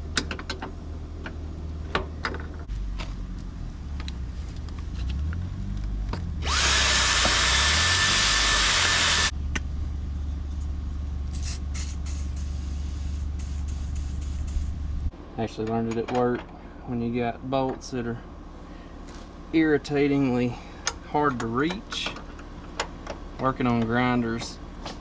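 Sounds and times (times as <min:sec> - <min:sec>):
low engine drone: 0:00.0 - 0:25.0
aerosol spray hissing: 0:11.3 - 0:14.8.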